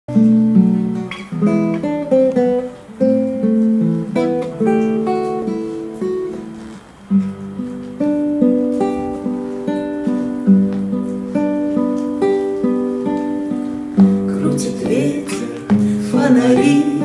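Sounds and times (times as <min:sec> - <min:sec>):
fingerpicked classical guitar: 0:00.1 - 0:17.0.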